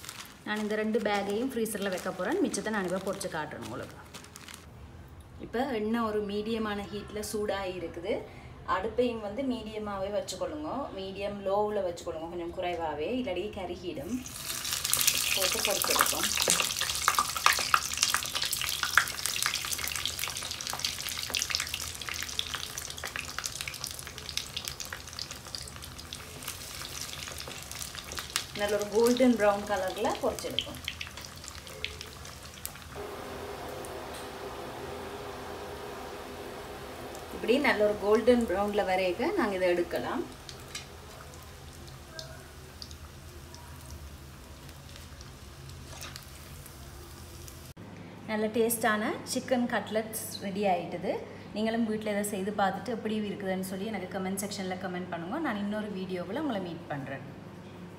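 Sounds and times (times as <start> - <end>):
chicken frying in hot oil: 14.2 - 47.7.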